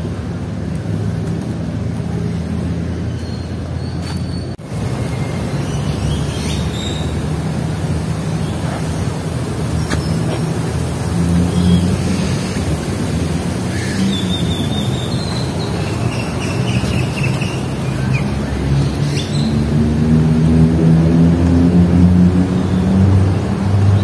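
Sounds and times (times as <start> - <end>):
traffic engine hum: 0.0 - 24.0
small birds chirping: 3.1 - 7.2, 13.7 - 19.6.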